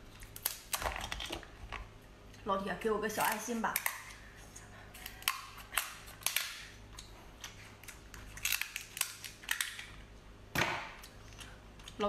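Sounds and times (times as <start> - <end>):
scissors cracking crab shell: 7.8 - 9.9.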